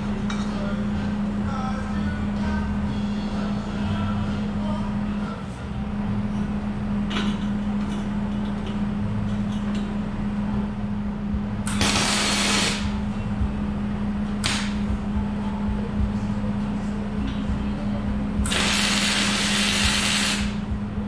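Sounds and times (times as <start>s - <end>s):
steady low hum: 0.0s - 21.0s
arc welding burst: 11.7s - 13.0s, 18.5s - 20.6s.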